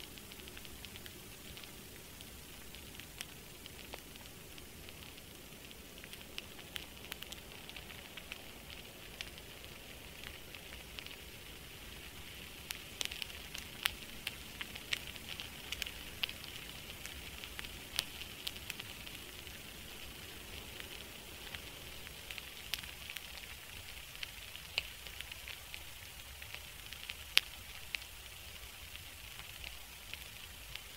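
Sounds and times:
sharp crackles and pops: 0.0s - 30.9s
steady hiss: 0.0s - 30.9s.

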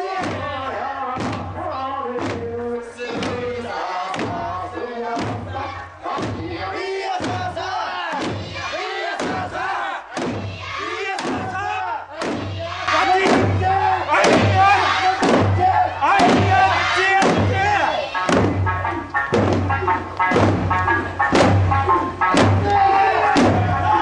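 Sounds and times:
group chanted shouts: 3.0s - 19.0s, 22.3s - 24.0s
hand drums striking: 15.2s - 24.0s.

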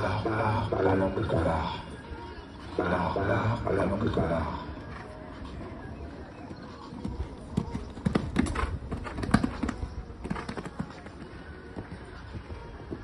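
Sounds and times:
horse hoofbeats on sand: 4.9s - 13.0s.

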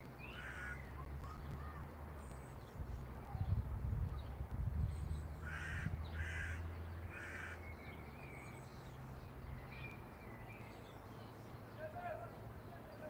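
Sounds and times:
small birds chirping: 0.0s - 13.0s
crow cawing: 0.3s - 0.8s, 5.4s - 7.6s.

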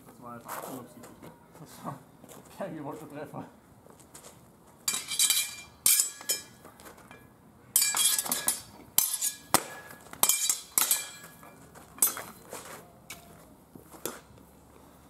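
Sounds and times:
swords clashing: 4.9s - 6.6s, 7.8s - 12.4s.

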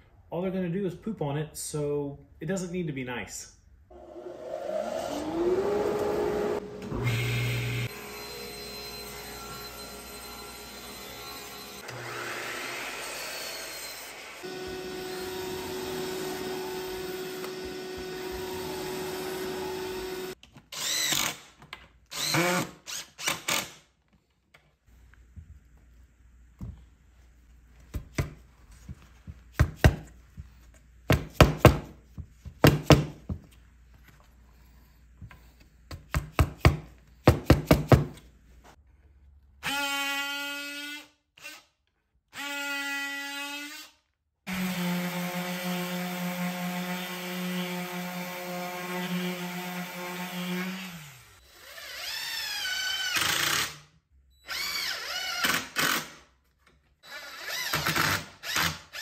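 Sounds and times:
cordless drill whirring: 4.0s - 21.5s, 22.1s - 23.8s, 51.4s - 53.6s, 54.5s - 56.0s.

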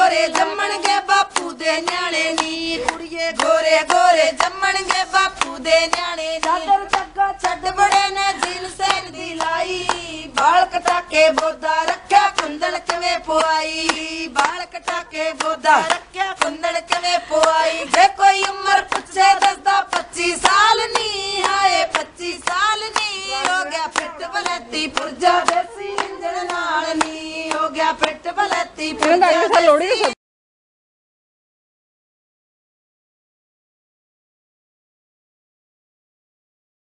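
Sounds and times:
women singing together: 0.0s - 30.2s
sharp hand claps: 0.1s - 29.2s.

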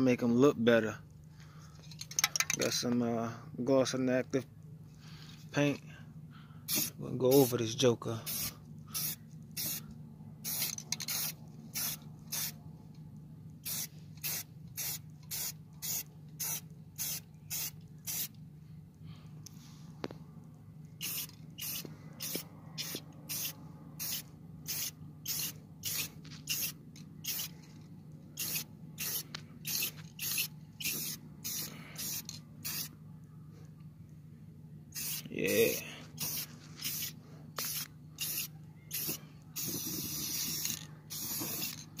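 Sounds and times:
steady low hum: 0.0s - 42.0s
spray paint can hissing: 6.7s - 7.5s, 8.3s - 9.8s, 10.4s - 12.6s, 13.6s - 18.4s, 21.0s - 27.6s, 28.4s - 32.9s, 34.9s - 42.0s.

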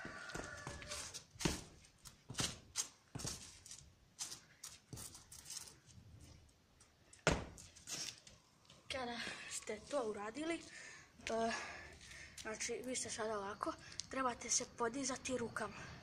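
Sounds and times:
sneakers scuffing on concrete wall: 0.0s - 5.9s, 7.2s - 8.3s.

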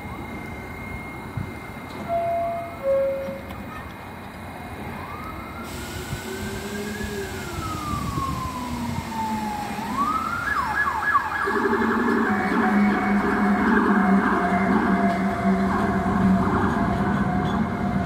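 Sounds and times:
emergency siren wailing: 4.6s - 18.0s.

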